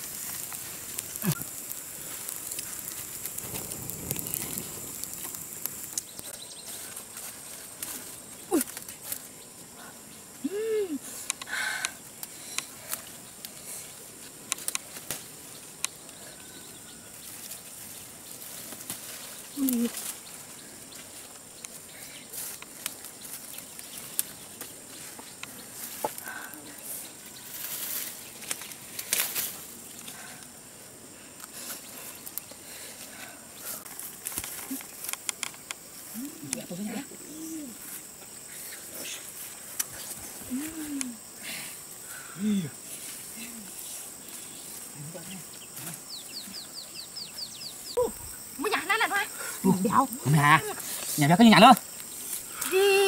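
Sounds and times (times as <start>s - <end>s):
wood fire crackling and popping: 0.0s - 9.6s, 11.1s - 16.4s, 17.1s - 30.6s, 31.3s - 42.2s
insect chirps: 0.0s - 53.0s
insect hum: 0.0s - 53.0s
leaves rustling: 0.0s - 53.0s
flower stems snapping: 19.6s - 20.2s, 28.4s - 30.2s.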